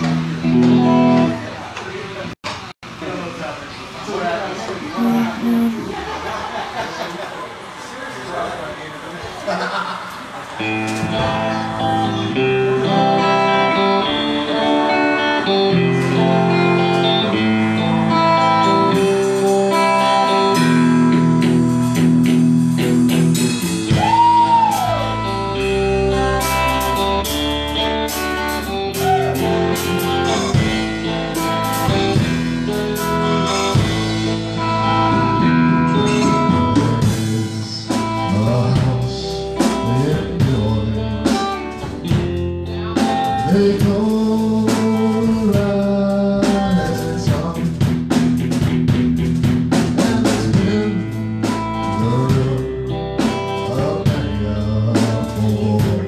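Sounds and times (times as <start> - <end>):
blues-rock electric guitars: 0.0 - 2.1, 10.2 - 56.0
drums and cymbals: 17.8 - 56.0.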